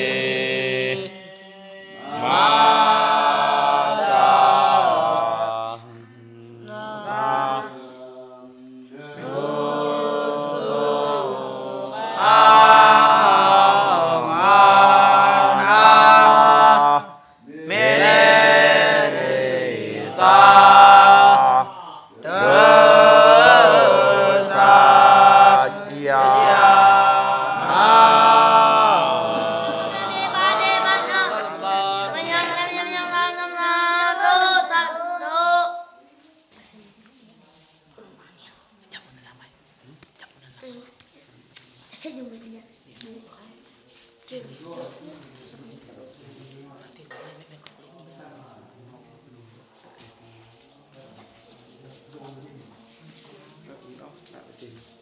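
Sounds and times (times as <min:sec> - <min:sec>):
young monks chanting together: 0:00.0 - 0:36.1.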